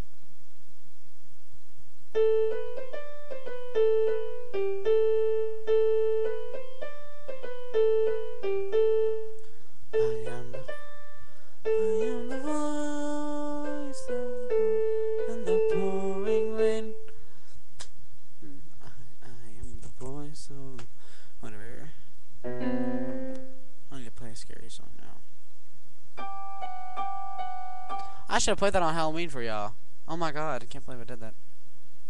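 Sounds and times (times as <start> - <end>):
electronic keyboard piano melody: 2.1 - 12.7, 13.5 - 17.1, 22.4 - 23.6, 26.2 - 28.2.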